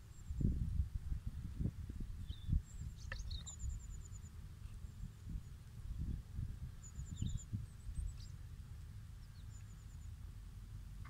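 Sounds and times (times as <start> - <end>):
faint bird chirps: 2.2 - 6.2, 6.8 - 10.2.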